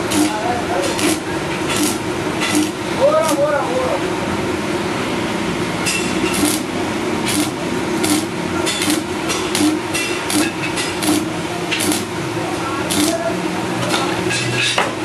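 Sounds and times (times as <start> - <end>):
welding arc hissing and crackling: 0.0 - 3.8, 5.8 - 13.6.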